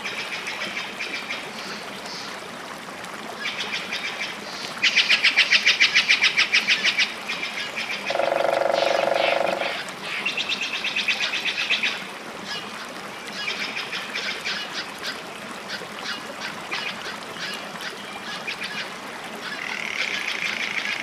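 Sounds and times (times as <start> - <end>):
rapid rattling animal calls: 8.1 - 9.9.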